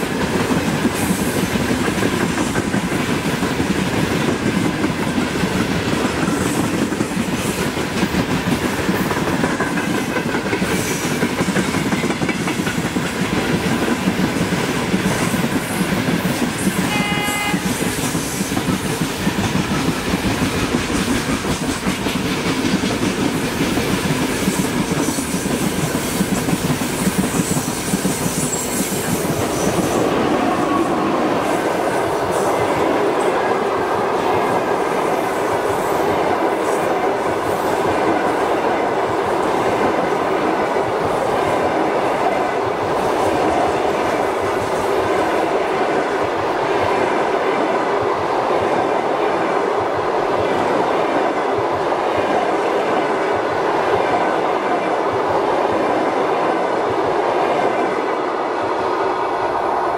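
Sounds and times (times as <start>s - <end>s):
train wheels clattering over rail joints: 0.1s - 16.9s, 17.5s - 30.0s.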